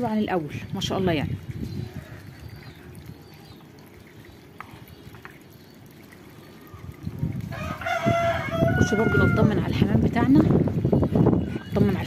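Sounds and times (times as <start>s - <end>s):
faint birds: 1.6s - 7.1s
rooster crowing: 7.5s - 9.5s.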